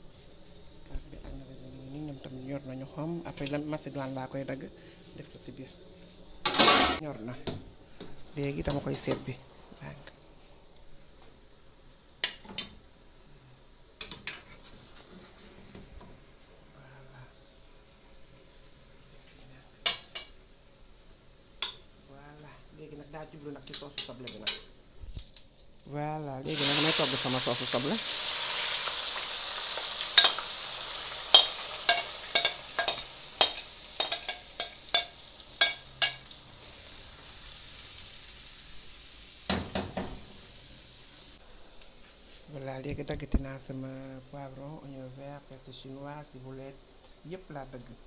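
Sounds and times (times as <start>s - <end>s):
onions sizzling in hot oil: 23.3s - 41.4s.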